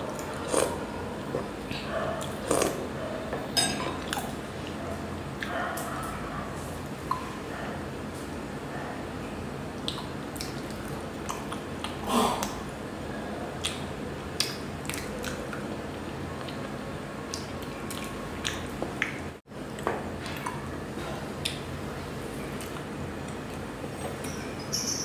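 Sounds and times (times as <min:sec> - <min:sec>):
person chewing: 0:00.2 - 0:02.8.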